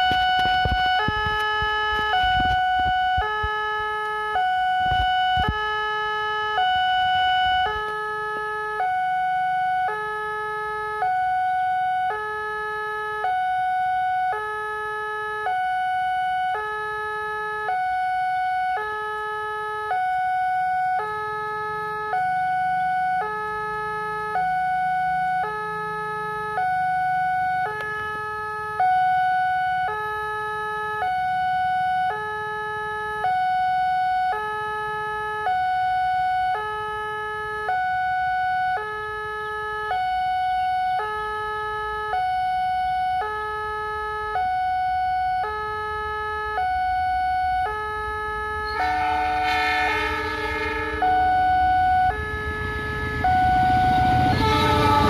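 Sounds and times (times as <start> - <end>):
level crossing alarm hee-haw: 48.6 - 55.0.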